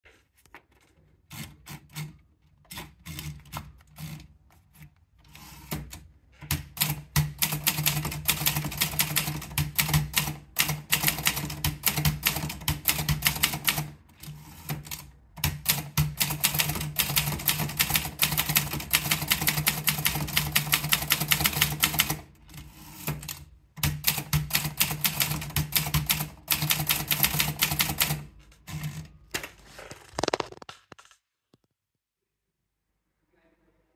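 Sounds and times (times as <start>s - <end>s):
typewriter typebars striking: 5.7s - 14.0s, 14.7s - 22.3s, 23.0s - 28.9s.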